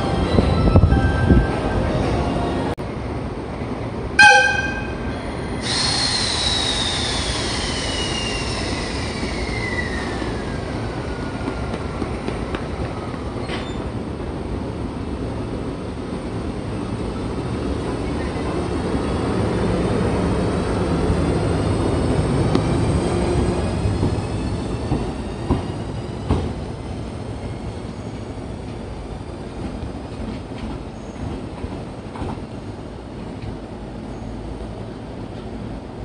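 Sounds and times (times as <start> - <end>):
locomotive whistle blast: 4.2 - 5.1.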